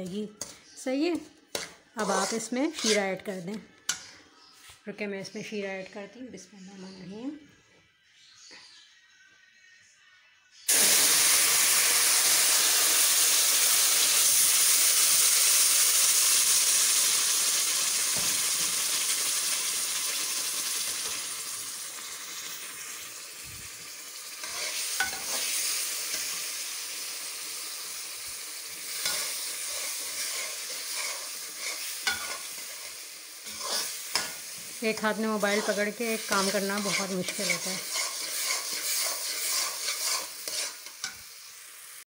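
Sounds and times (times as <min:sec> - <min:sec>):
spatula scraping metal pan: 0:00.4 - 0:04.2, 0:24.4 - 0:26.3, 0:28.9 - 0:41.2
syrup sizzling in hot pan: 0:10.7 - 0:42.0.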